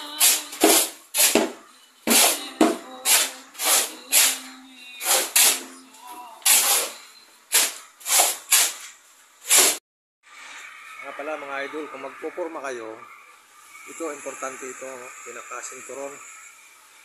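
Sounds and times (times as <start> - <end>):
music with singing: 0.0 - 1.0, 1.7 - 7.2
shovels scraping sand and cement: 0.1 - 1.5, 2.1 - 9.8.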